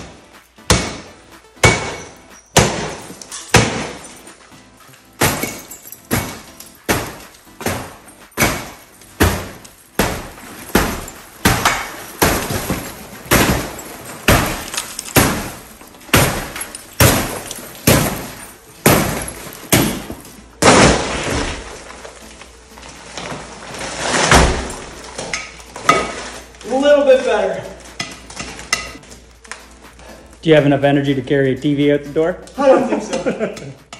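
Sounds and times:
bat striking shattered glass door: 0.7 - 4.3, 5.2 - 22.2, 23.3 - 26.4
crash of broken glass: 1.6 - 4.4, 5.0 - 26.5.

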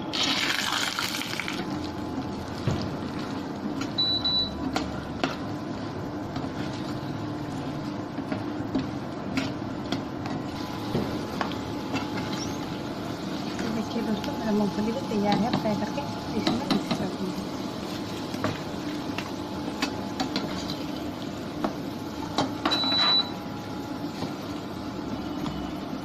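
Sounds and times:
peanuts sizzling in oil: 0.1 - 2.6.

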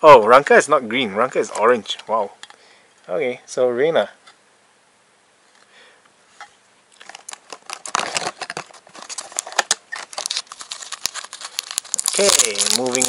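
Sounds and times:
plastic packaging rustling: 6.9 - 13.0.

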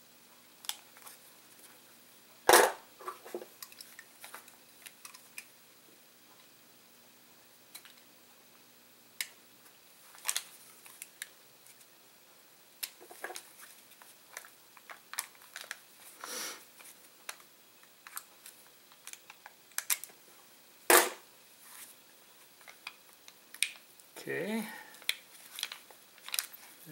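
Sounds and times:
foil pouch clicks and crinkles: 10.1 - 11.3, 12.8 - 15.9, 16.8 - 20.2, 24.9 - 26.9.

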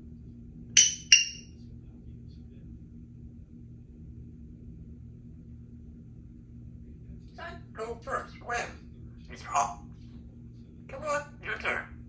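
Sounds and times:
parrot giving sharp high notes: 0.8 - 1.4.

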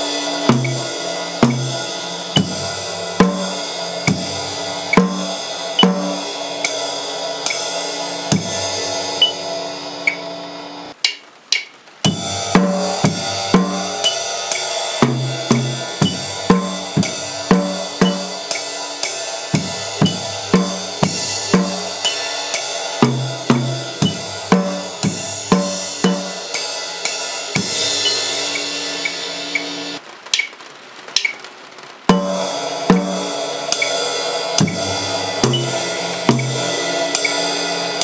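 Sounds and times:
bass drum and snare beat: 0.0 - 6.8, 8.3 - 9.4, 12.1 - 26.6, 32.1 - 37.5
cymbal crash ringing: 0.0 - 10.9, 12.1 - 30.0, 32.1 - 38.0
cymbal wash: 0.0 - 11.0, 12.0 - 30.0, 32.1 - 38.0.

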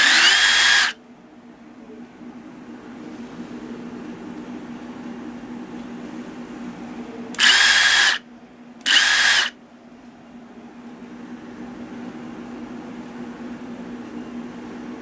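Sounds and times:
impact driver motor whine: 0.0 - 1.0, 7.4 - 8.2, 8.8 - 9.6.

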